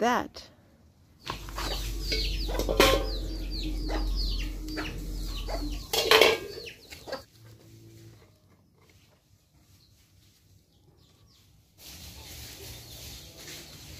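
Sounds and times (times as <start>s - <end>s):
high falling chirps: 1.2s - 7.2s
chickens clucking: 1.2s - 13.9s
metal pan clanking on stones: 2.0s - 4.0s, 5.6s - 6.8s.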